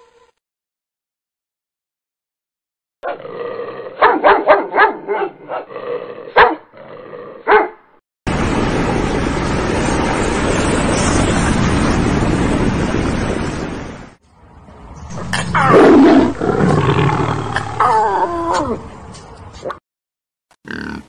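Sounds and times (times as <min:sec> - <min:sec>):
dog barking: 0:04.0 - 0:05.7, 0:06.4 - 0:06.7, 0:07.4 - 0:07.8
loud rushing noise: 0:08.3 - 0:16.4.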